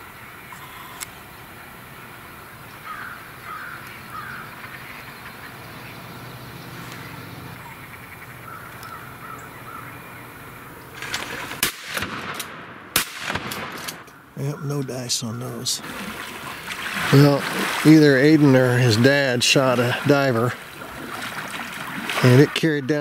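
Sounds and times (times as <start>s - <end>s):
crows cawing: 2.8s - 5.6s, 7.6s - 10.8s, 14.0s - 18.3s
shotgun fire: 11.0s - 14.0s.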